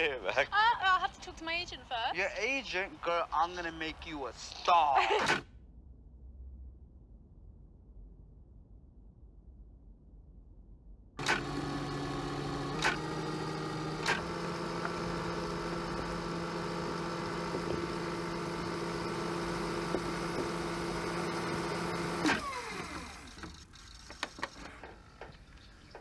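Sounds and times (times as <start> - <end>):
tape motor whirring: 5.0 - 5.4, 11.2 - 26.0.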